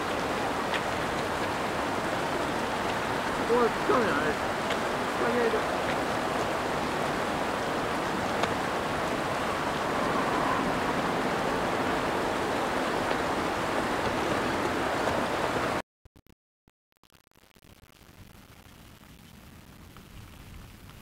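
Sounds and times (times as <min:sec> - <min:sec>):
flowing stream water: 0:00.0 - 0:15.8.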